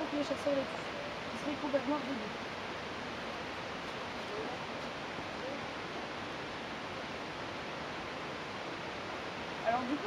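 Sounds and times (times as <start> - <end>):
faint distant voices: 3.2 - 6.5.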